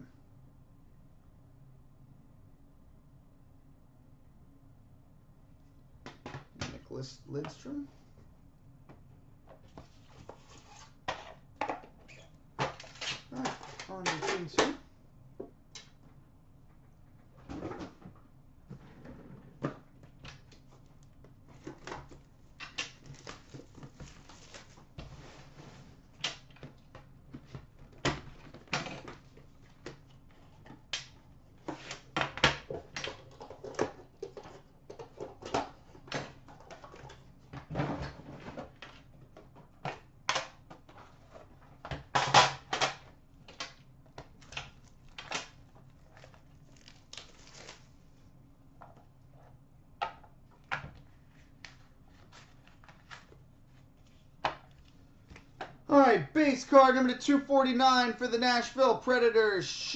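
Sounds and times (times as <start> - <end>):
hands handling card boxes: 48.8 - 55.8.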